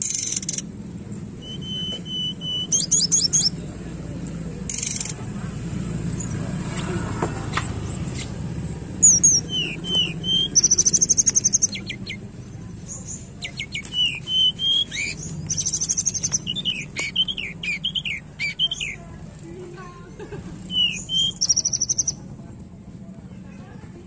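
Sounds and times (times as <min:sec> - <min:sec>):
bird buzzy trill: 0:00.0 - 0:03.6, 0:08.8 - 0:12.3, 0:12.9 - 0:19.0, 0:20.7 - 0:22.2
bird singing whistled notes: 0:01.4 - 0:03.6, 0:09.0 - 0:12.2, 0:12.9 - 0:19.0, 0:20.7 - 0:22.3.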